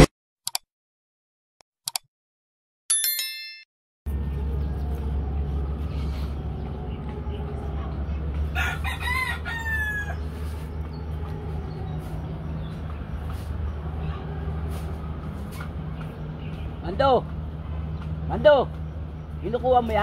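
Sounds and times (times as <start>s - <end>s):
steady low rumble: 4.1s - 9.5s
rooster crowing: 8.5s - 10.6s.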